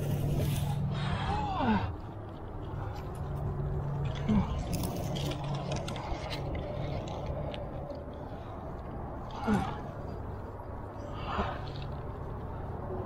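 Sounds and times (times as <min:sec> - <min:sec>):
climbing gear clinking: 0:00.0 - 0:12.5
steady low hum: 0:00.0 - 0:13.0
grunts of effort: 0:00.9 - 0:02.1, 0:04.1 - 0:05.0, 0:09.2 - 0:10.2.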